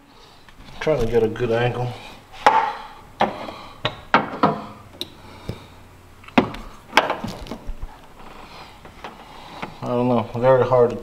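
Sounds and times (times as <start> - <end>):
hard objects clicking and knocking: 6.2 - 7.6.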